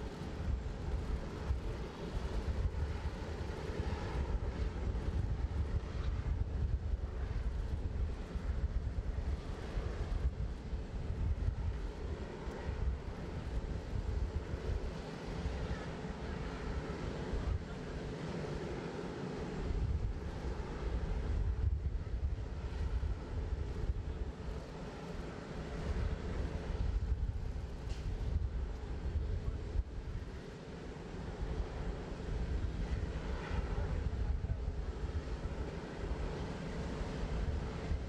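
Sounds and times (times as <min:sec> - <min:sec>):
faint constant hum: 0:00.0 - 0:38.0
jetliner engine rumble: 0:00.0 - 0:38.0.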